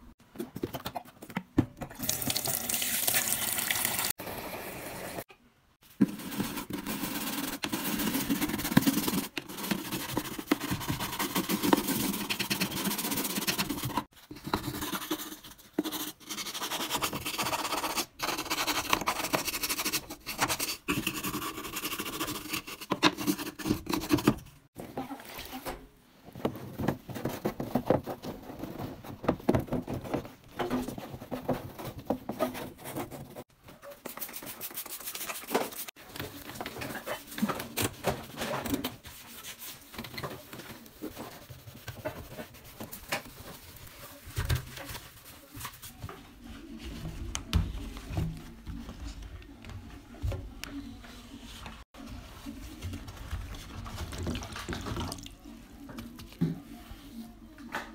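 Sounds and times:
brush scrubbing plastic: 0:05.9 - 0:24.4, 0:39.0 - 0:46.0.

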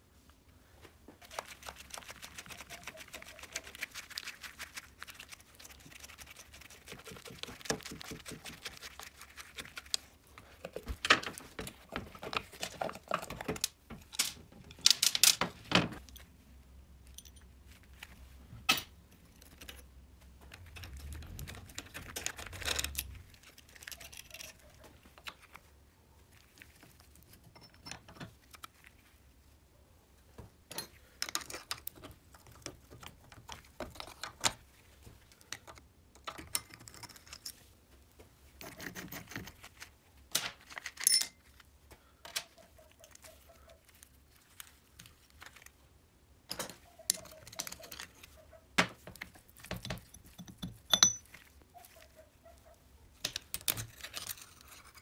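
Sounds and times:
metal parts and tools clinking: 0:10.9 - 0:16.3, 0:17.0 - 0:17.6, 0:20.5 - 0:24.6, 0:27.4 - 0:28.3, 0:40.7 - 0:41.5, 0:46.5 - 0:48.3, 0:49.6 - 0:51.5.

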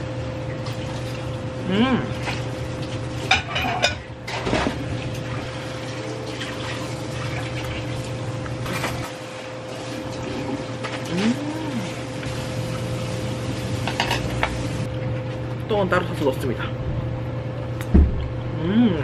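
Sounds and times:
person humming mm: 0:01.6 - 0:02.2, 0:11.0 - 0:12.1, 0:18.5 - 0:19.0.

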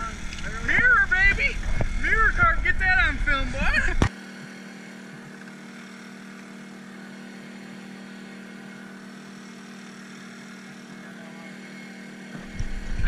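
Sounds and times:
sudden low rumble: 0:00.0 - 0:04.1
generator engine running: 0:00.0 - 0:13.0.

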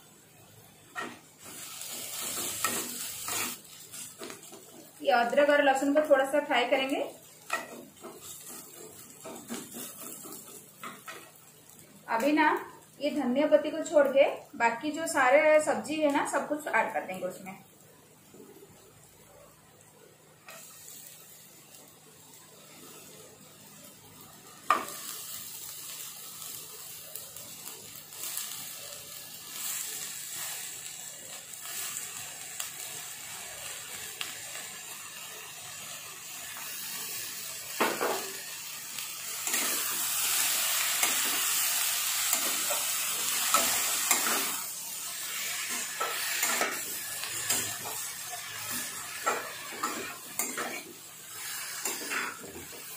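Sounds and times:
vegetables sizzling in oil: 0:00.0 - 0:52.9
spatula scraping pan: 0:07.5 - 0:11.3, 0:42.3 - 0:52.9.

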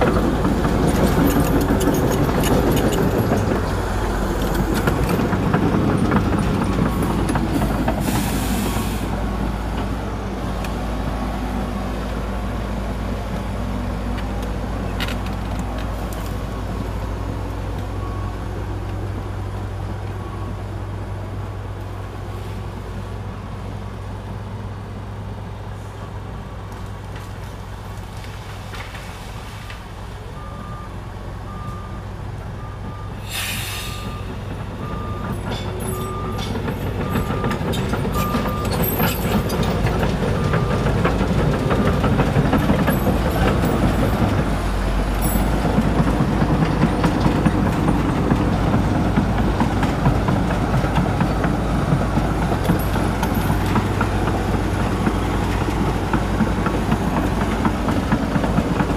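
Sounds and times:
bulldozer diesel engine running: 0:00.0 - 0:28.5, 0:29.9 - 0:58.9
brief hiss: 0:33.2 - 0:34.1.

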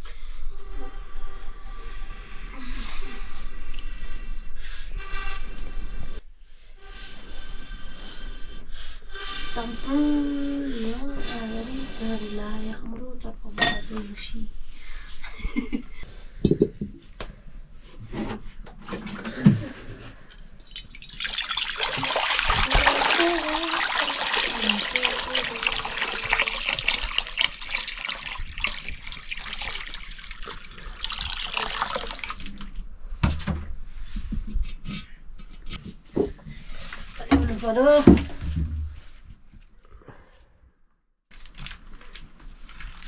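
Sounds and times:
water pouring: 0:20.6 - 0:32.8, 0:41.4 - 0:43.0.

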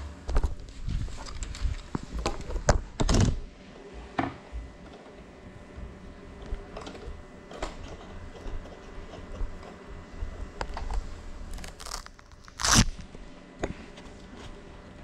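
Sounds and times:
loud scraping crunch: 0:11.5 - 0:13.0.

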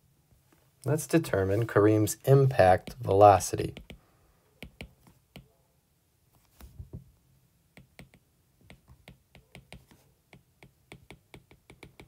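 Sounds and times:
stylus tapping on glass screen: 0:07.8 - 0:12.0.

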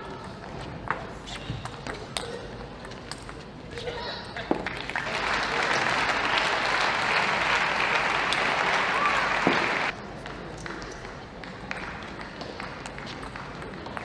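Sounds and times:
spectators applauding: 0:04.7 - 0:10.0.

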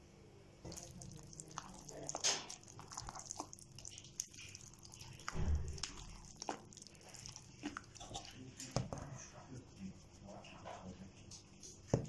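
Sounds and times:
spatula stirring thick batter: 0:00.6 - 0:12.0
low thump: 0:05.3 - 0:05.8.

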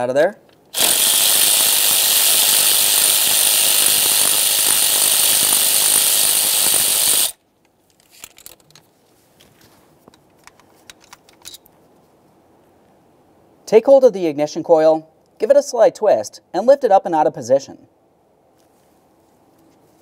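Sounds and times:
cordless power tool running: 0:00.7 - 0:07.4.

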